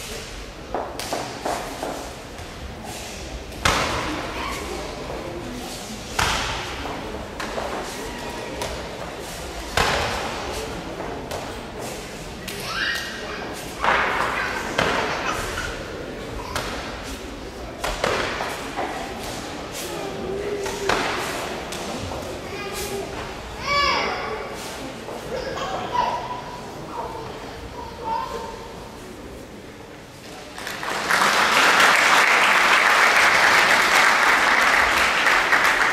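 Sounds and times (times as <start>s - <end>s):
audience applauding: 30.6s - 35.9s.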